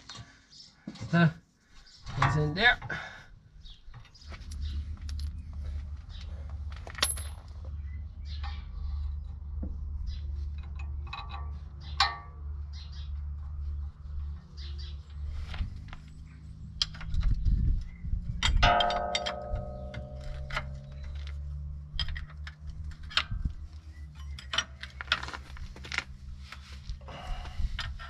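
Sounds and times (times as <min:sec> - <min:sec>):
metal tools clinking: 0:06.7 - 0:07.5, 0:18.4 - 0:23.4
ringing metal clang: 0:18.5 - 0:21.4.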